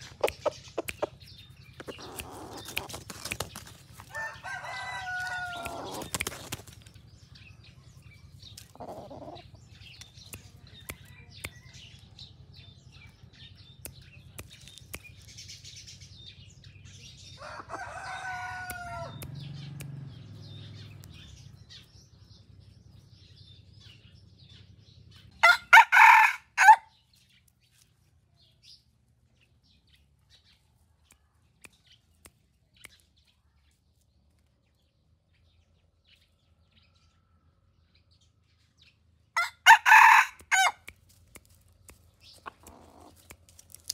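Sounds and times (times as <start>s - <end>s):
rooster crowing: 4.1s - 6.0s, 17.4s - 19.2s, 25.4s - 26.9s, 39.4s - 40.8s.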